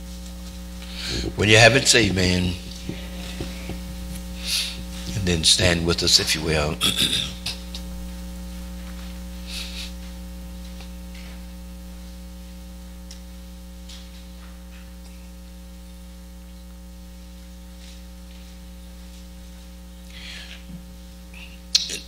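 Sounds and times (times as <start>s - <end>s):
electrical mains hum: 0.0s - 22.0s
faint hissy rustles: 17.2s - 21.3s.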